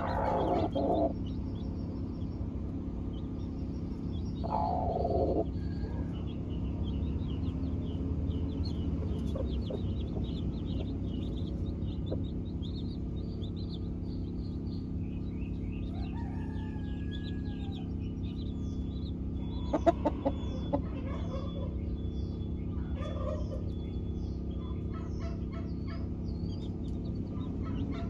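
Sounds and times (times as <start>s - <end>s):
hen calling: 0.0s - 1.2s, 4.4s - 5.5s
hen clucking: 0.0s - 1.4s, 4.3s - 6.4s, 8.5s - 14.3s, 19.4s - 21.9s, 24.6s - 28.0s
chicks peeping: 0.0s - 28.0s
steady low hum: 0.0s - 28.0s.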